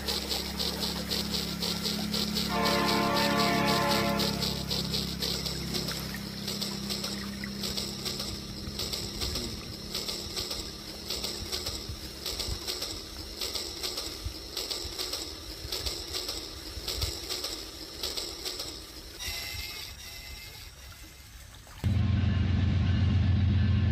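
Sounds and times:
shallow stream flowing: 0.0s - 13.4s, 18.9s - 21.9s
toy train clattering on track: 0.0s - 20.6s.

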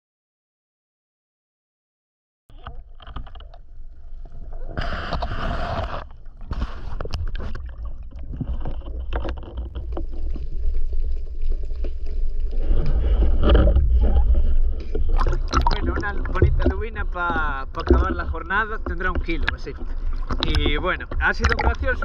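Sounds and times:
underwater rumble: 2.5s - 22.0s
clicks and knocks: 15.2s - 22.0s.

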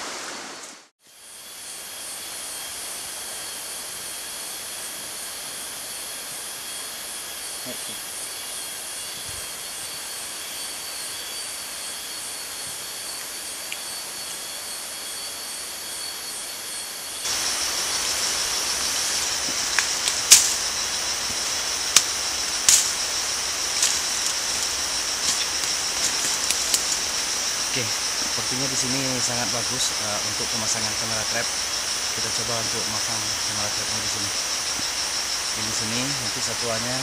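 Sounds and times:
insect chorus drone: 0.0s - 37.0s
faint pulsing buzz: 2.6s - 37.0s
sharp snaps and clicks: 19.7s - 20.6s, 21.9s - 23.0s.

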